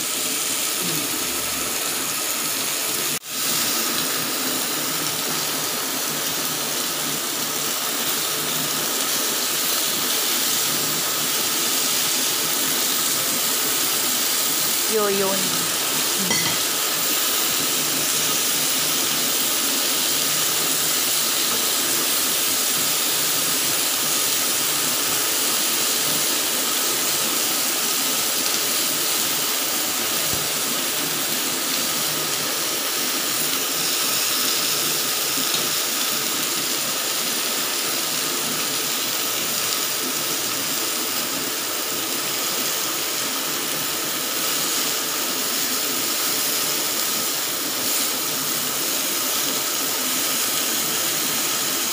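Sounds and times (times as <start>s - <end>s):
chicken sizzling on grill pan: 0.0s - 51.9s.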